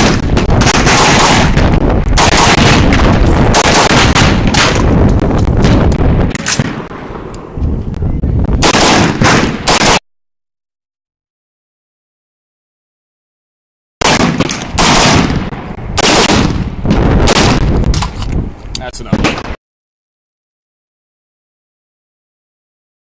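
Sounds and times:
rifle shots in pairs: 0.0 - 6.9, 8.6 - 10.0, 14.0 - 18.2, 19.1 - 19.6.

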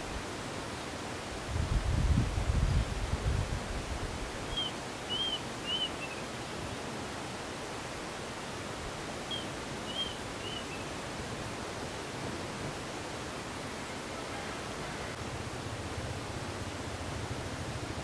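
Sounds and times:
outdoor ambient hiss: 0.0 - 18.0
small bird chirping: 4.5 - 6.2, 9.3 - 10.9.

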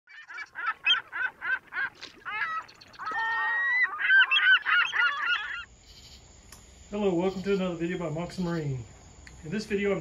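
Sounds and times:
birds honking: 0.1 - 6.1.

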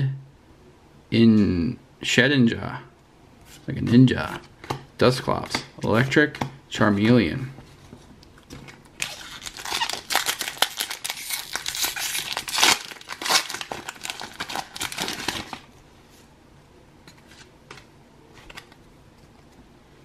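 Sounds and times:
foil wrapper tearing and crinkling: 9.0 - 15.7.

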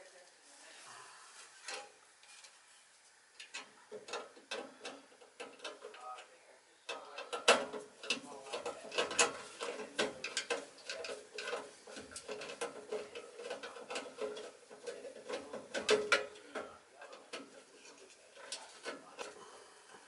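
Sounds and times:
tools clicking and rattling: 6.9 - 17.6.

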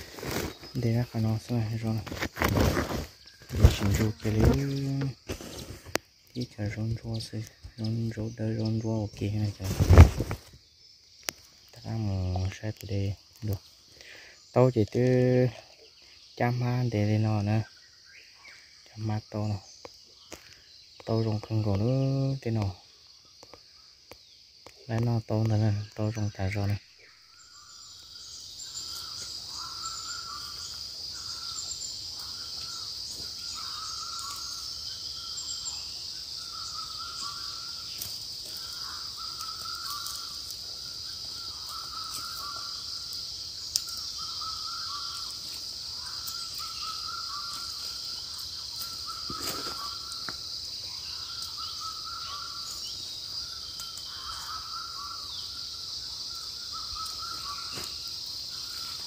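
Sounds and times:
insects droning: 0.0 - 59.0
bird two-part call: 48.8 - 50.4.

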